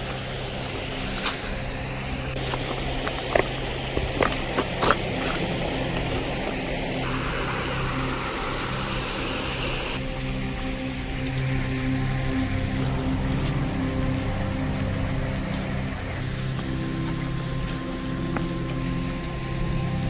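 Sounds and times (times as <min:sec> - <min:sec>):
footsteps on gravel: 0:00.0 - 0:09.0, 0:16.2 - 0:18.8
steady low hum: 0:00.0 - 0:10.0.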